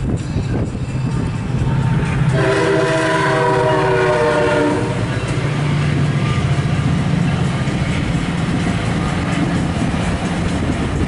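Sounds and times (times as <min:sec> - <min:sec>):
train rumbling over crossing: 0:00.0 - 0:11.0
train horn blast: 0:01.7 - 0:05.4.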